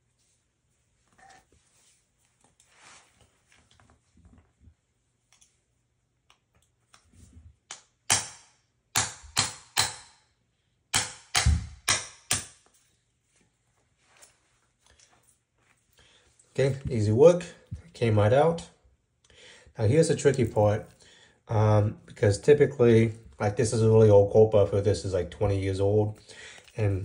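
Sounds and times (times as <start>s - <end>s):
faint handling noise: 12.7s - 18.1s.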